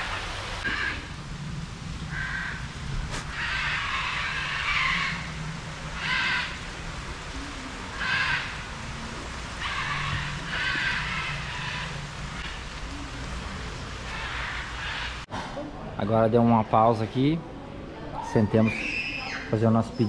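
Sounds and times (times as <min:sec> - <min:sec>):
harsh animal squawks: 0:03.2 - 0:05.4, 0:06.0 - 0:06.7, 0:07.9 - 0:08.6, 0:09.6 - 0:12.6.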